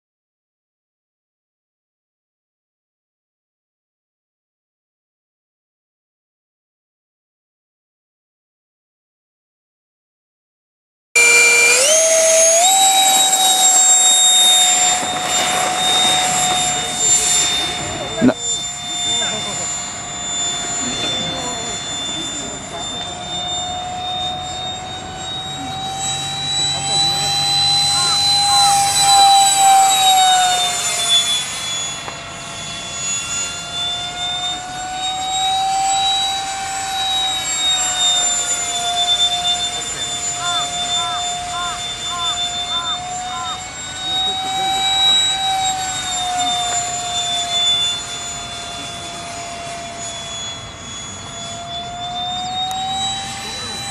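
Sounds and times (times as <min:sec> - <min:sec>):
electric ducted fan whine: 0:11.2 - 0:53.9.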